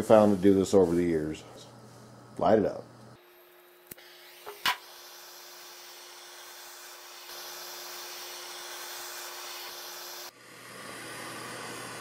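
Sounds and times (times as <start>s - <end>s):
gas torch flame hissing: 0.0s - 1.4s, 4.3s - 12.0s.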